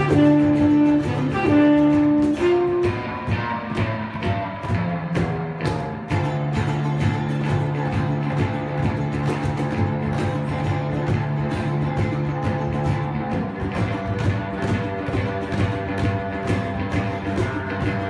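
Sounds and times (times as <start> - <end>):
saxophone long notes: 0.0 - 4.8
cajon beats: 0.0 - 18.0
electric bass: 0.0 - 18.0
guitars: 0.0 - 18.0.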